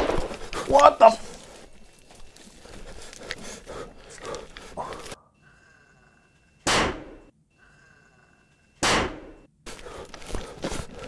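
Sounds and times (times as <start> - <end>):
shotgun blasts: 0.0 - 0.6, 6.6 - 7.3, 8.8 - 9.4.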